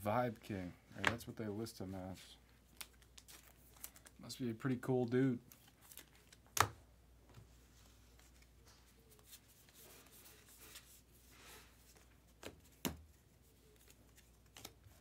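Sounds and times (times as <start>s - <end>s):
cards rustling: 2.1s - 6.8s, 7.6s - 15.0s.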